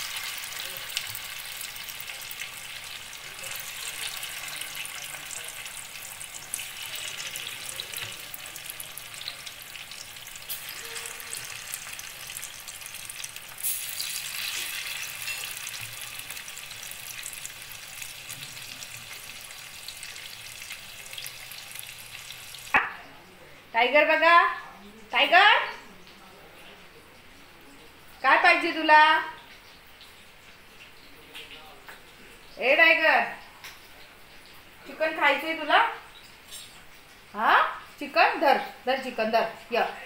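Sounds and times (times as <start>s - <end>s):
chicken sizzling in hot oil: 0.0s - 22.9s
oil crackling: 0.0s - 23.0s.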